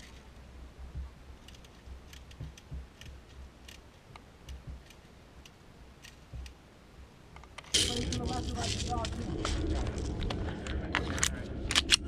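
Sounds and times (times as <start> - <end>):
low rumble: 7.8 - 12.0.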